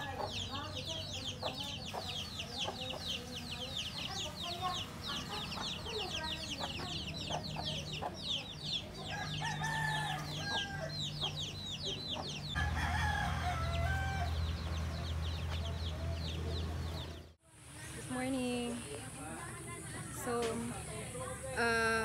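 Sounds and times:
chickens clucking: 0:00.0 - 0:17.4
rooster crowing: 0:09.1 - 0:11.1, 0:12.6 - 0:15.0.

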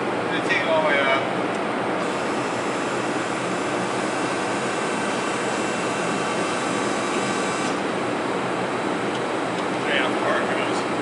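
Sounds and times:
hydraulic press hum: 0:01.4 - 0:09.8.

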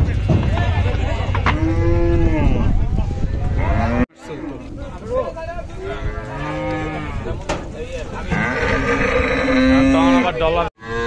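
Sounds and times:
cow mooing: 0:06.0 - 0:07.3, 0:08.3 - 0:11.0.

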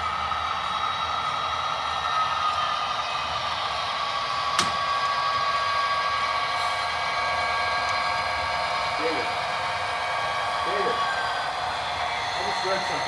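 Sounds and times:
model train whirring: 0:00.0 - 0:13.0
sharp click: 0:04.6 - 0:04.8.

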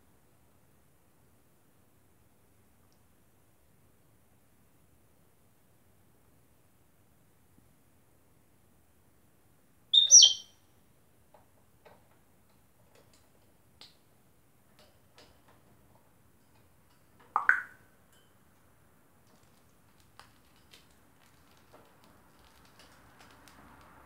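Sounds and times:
parrot calls: 0:09.9 - 0:10.5
faint taps and clicks: 0:16.5 - 0:17.8.

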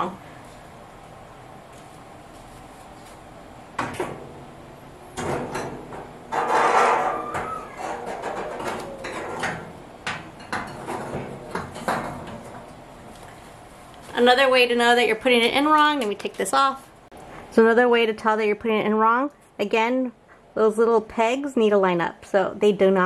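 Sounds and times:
metal panel scraping rattle: 0:05.2 - 0:09.6.

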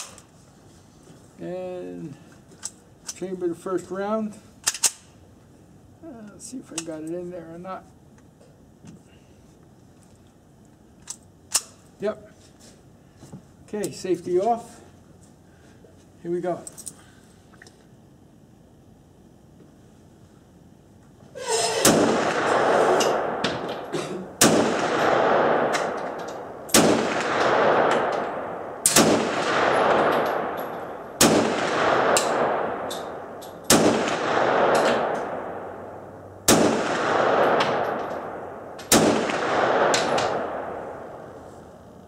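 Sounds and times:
pistol shots echoing: 0:21.8 - 0:41.3.

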